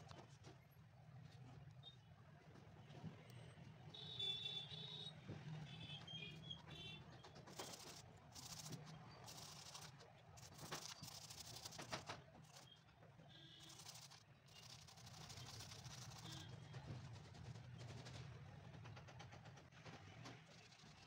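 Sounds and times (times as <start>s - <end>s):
stiff brush scrubbing shoe sole: 7.5s - 12.7s, 13.6s - 16.4s.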